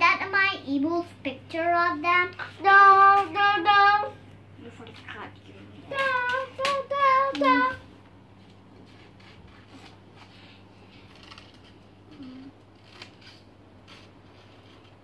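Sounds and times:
low steady hum: 0.0 - 15.0
short hummed sound: 9.7 - 14.6.

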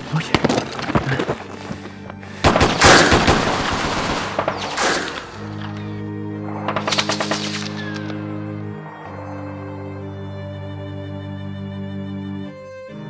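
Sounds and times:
automatic gunfire: 2.4 - 5.2, 6.6 - 7.8
low sustained music chord: 5.3 - 13.0.

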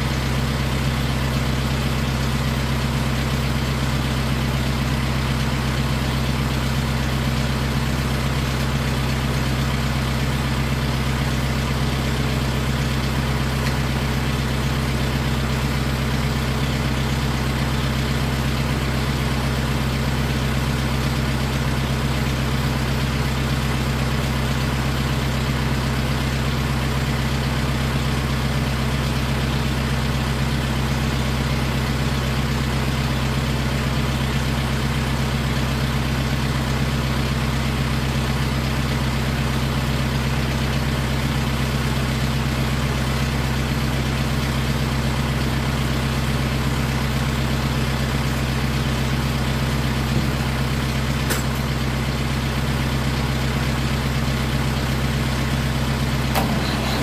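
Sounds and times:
tractor engine idling: 0.0 - 57.0.

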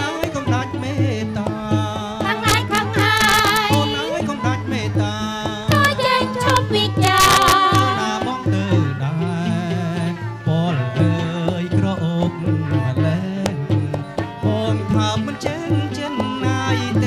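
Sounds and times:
bamboo flute: 0.0 - 13.4
hand drum: 0.0 - 17.0
two-string fiddles: 0.0 - 17.0
person singing: 2.2 - 9.8.

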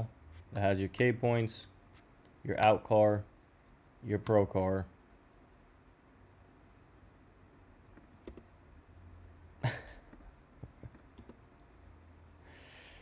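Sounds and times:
low steady hum: 0.0 - 13.0
computer clicks: 8.0 - 8.5.

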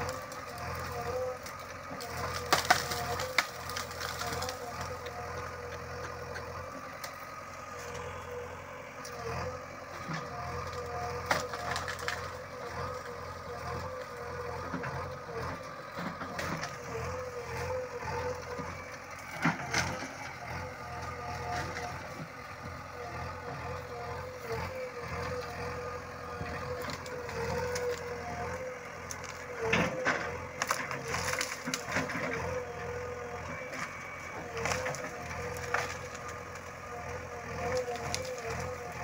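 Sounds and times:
branches cracking and snapping: 0.0 - 8.2, 9.0 - 22.4, 23.1 - 39.0
diesel engine running: 0.0 - 39.0.

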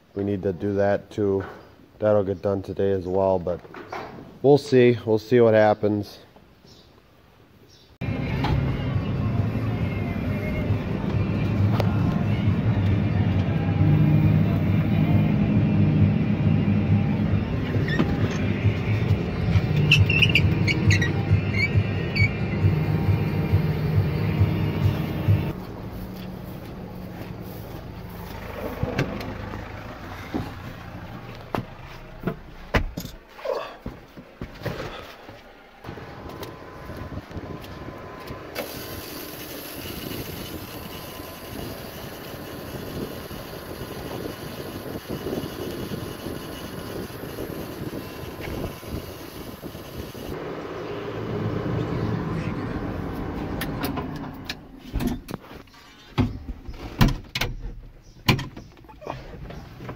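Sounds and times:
tractor engine running: 8.0 - 34.6, 35.2 - 55.0
short high squeak: 19.8 - 22.6.

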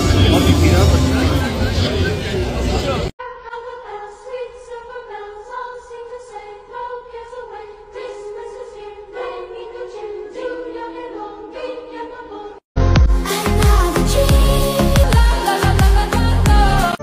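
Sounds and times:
choir singing held notes: 3.4 - 12.6.

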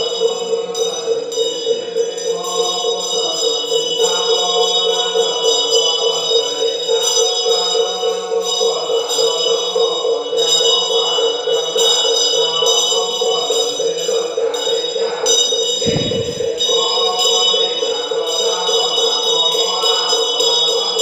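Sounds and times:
metallic ringing: 15.3 - 17.3.

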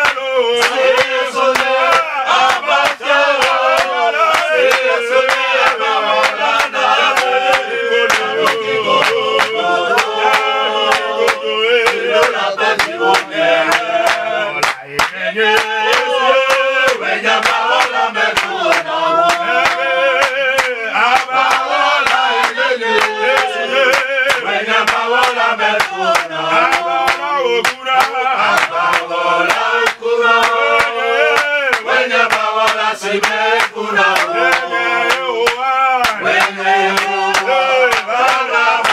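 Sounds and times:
group singing worship chorus: 0.0 - 38.9.

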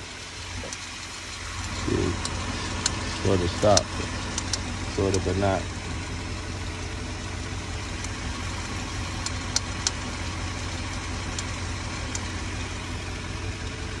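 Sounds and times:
car engine idling: 0.0 - 14.0
cooling fan spinning: 0.0 - 14.0
sharp clicks: 1.6 - 5.3, 9.2 - 10.0, 11.3 - 12.3.

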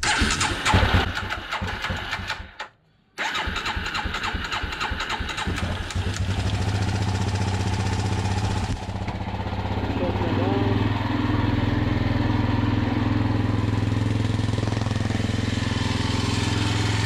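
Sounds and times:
engine starting and idling: 0.0 - 9.3.

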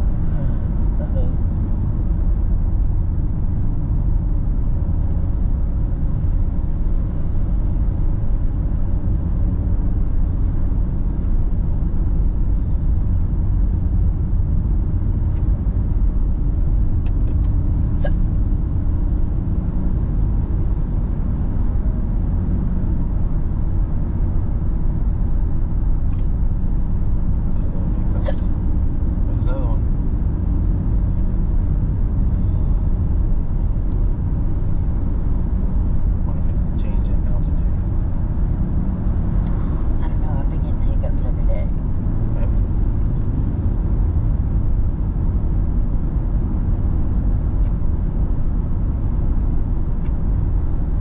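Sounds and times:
vehicle engine and tyres rumbling: 0.0 - 51.0.

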